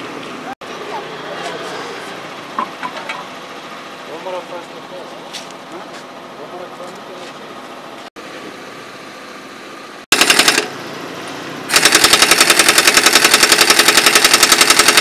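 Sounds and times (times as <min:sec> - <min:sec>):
pneumatic impact wrench hammering: 0:10.1 - 0:10.7, 0:11.7 - 0:15.0.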